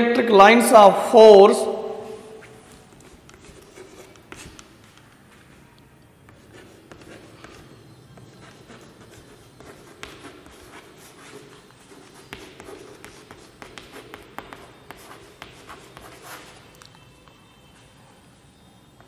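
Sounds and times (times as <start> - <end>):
chalk writing on blackboard: 2.4 - 5.6, 6.2 - 16.8.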